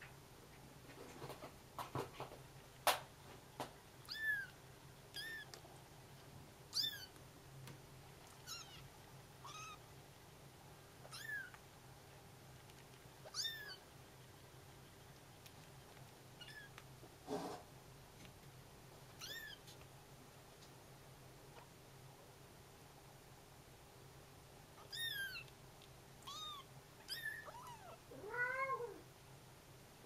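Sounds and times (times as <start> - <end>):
kittens meowing: 4.0 - 5.6, 6.7 - 7.2, 8.4 - 9.8, 11.0 - 11.6, 13.2 - 13.8, 16.4 - 16.8, 19.2 - 19.7, 24.8 - 25.5, 26.2 - 29.0.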